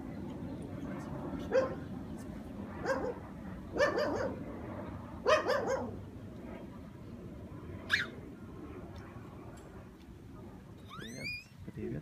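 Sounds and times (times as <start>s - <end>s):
dog barking: 1.5s - 1.8s, 2.8s - 3.2s, 3.8s - 4.4s, 5.2s - 5.9s
dog yelping: 2.8s - 3.2s, 3.8s - 4.4s, 5.2s - 6.0s, 7.9s - 8.2s, 10.9s - 11.5s.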